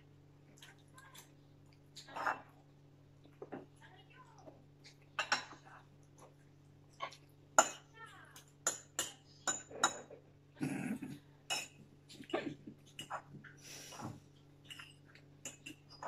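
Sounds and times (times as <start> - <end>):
forks clinking on plates: 5.2 - 5.7, 7.6 - 10.2, 11.5 - 13.4, 14.6 - 16.0.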